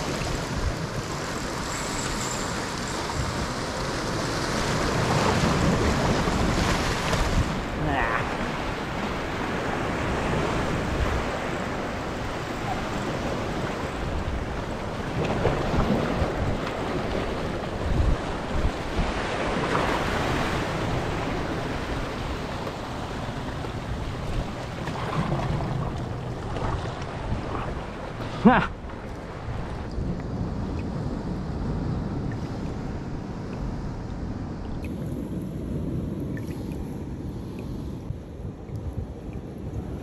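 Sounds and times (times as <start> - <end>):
surf breaking on rocks: 0.0 - 29.8
wind buffeting microphone: 0.0 - 40.0.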